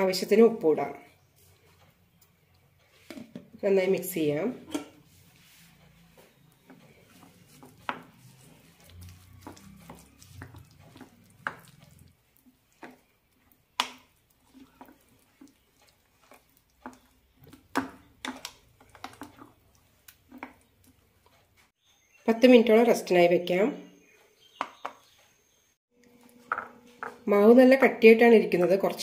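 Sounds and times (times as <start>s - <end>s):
spoon stirring thick batter: 0.1s - 21.9s.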